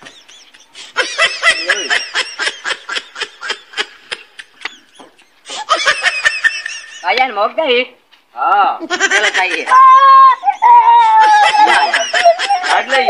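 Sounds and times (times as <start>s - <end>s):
high-pitched laughter: 8.8s - 13.0s.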